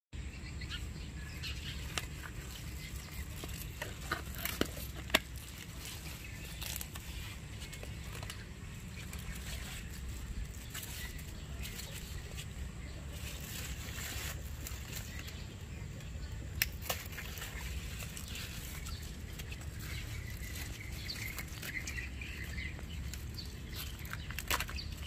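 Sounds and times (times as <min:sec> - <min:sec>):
low outdoor rumble: 0:00.2 - 0:25.0
leaves rustling: 0:00.4 - 0:25.0
knife cutting stems snapping: 0:16.5 - 0:17.4.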